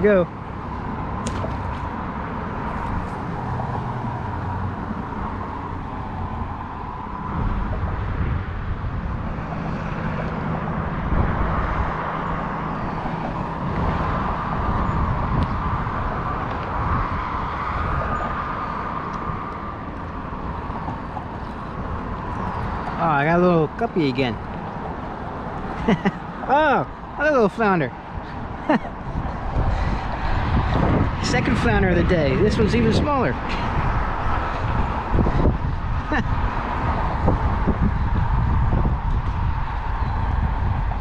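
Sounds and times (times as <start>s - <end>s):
road traffic passing: 0.0s - 41.0s.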